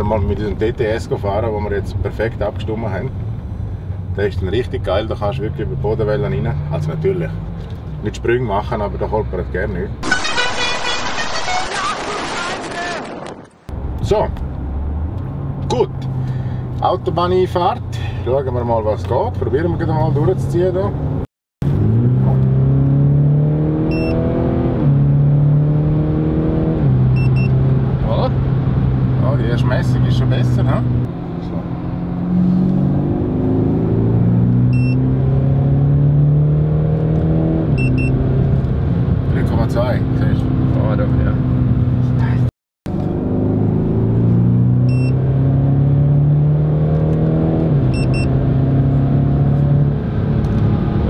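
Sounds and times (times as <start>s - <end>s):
car engine accelerating: 19.1s - 51.0s
short electronic beeps: 23.9s - 24.2s, 27.2s - 27.6s, 34.7s - 35.1s, 37.8s - 38.2s, 44.8s - 45.2s, 47.9s - 48.4s.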